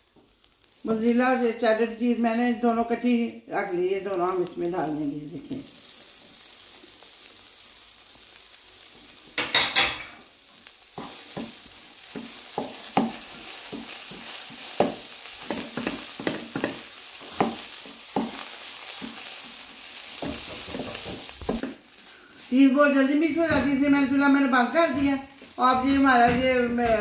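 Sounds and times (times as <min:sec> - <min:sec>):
food sizzling: 0:00.0 - 0:27.0
spatula scraping a wok: 0:09.3 - 0:22.6.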